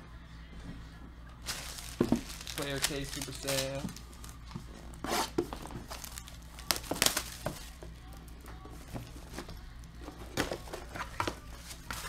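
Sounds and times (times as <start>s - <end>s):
plastic shrink-wrap crinkling: 1.4s - 5.0s, 5.6s - 8.2s.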